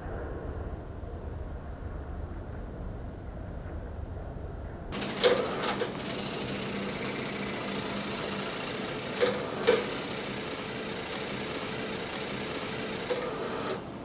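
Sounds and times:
film projector clatter and hum: 4.9s - 14.0s.

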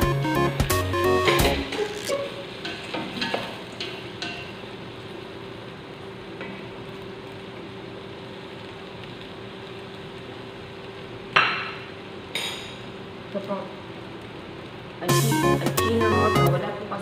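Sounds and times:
food sauteing in a pot: 0.0s - 17.0s
spatula tapping a pot: 2.6s - 4.5s.

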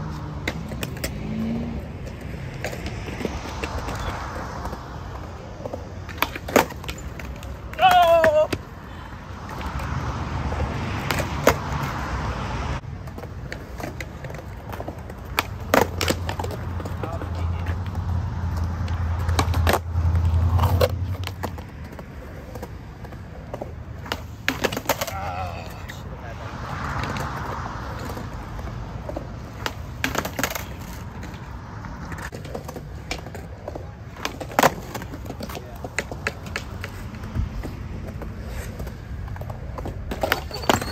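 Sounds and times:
skateboard rolling on concrete: 0.0s - 40.9s
skateboard clacking on ground: 0.1s - 10.0s, 10.9s - 12.0s, 12.9s - 40.9s.

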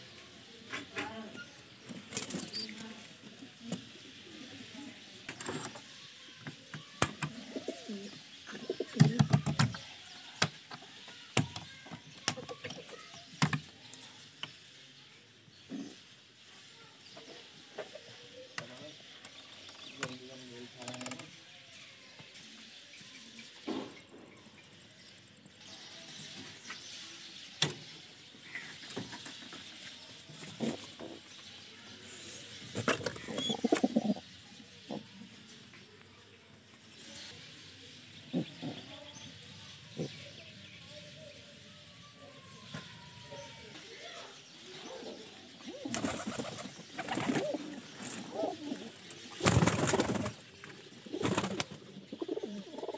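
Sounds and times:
pigeons cooing: 7.0s - 9.9s, 30.4s - 31.3s, 32.7s - 35.4s, 38.2s - 39.2s, 44.7s - 52.9s
pigeons scuffling: 45.8s - 52.2s.

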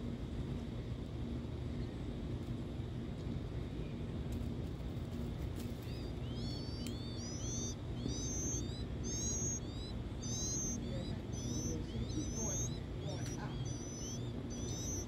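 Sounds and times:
nestlings chirping: 5.5s - 15.0s.

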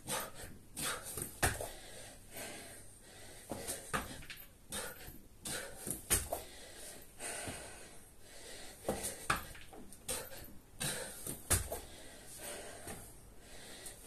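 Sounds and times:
man breathing hard: 0.0s - 14.0s
thuds on rubber floor mat: 11.2s - 11.8s.

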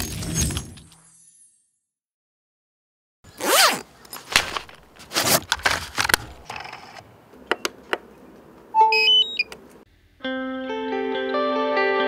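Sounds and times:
zipper pulled open: 3.3s - 4.4s, 5.0s - 6.1s
electronic start-up beeps: 8.8s - 9.5s.

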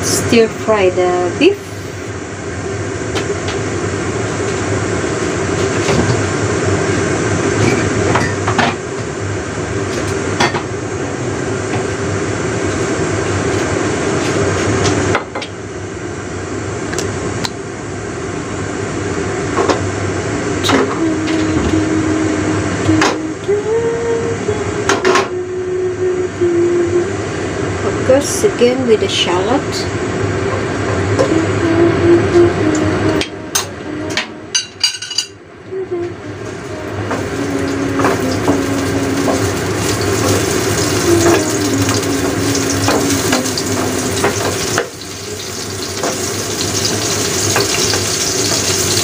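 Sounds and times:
gas burner hissing: 0.0s - 8.1s, 36.8s - 49.0s.

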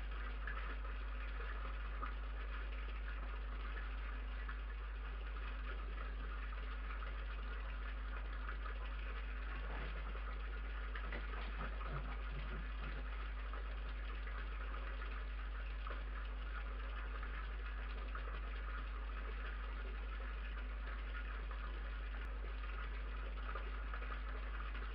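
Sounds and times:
low electrical hum: 0.0s - 24.9s.

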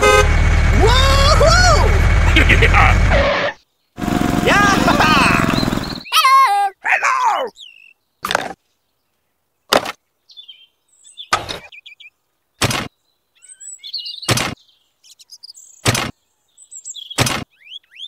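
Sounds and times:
small birds chirping: 3.6s - 18.0s.

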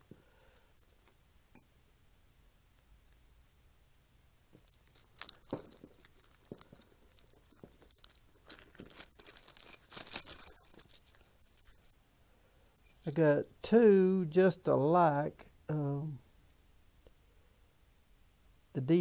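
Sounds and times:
plastic bag crinkling and tearing: 4.6s - 11.2s.

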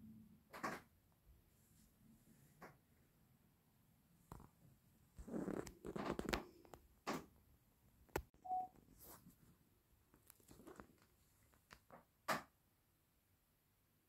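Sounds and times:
short beep: 8.4s - 8.7s.

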